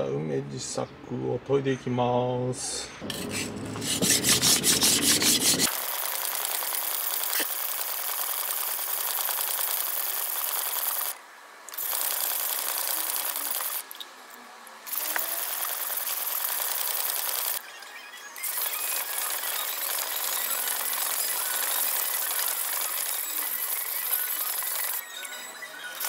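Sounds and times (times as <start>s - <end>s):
blade grinding on whetstone: 3.0s - 5.7s.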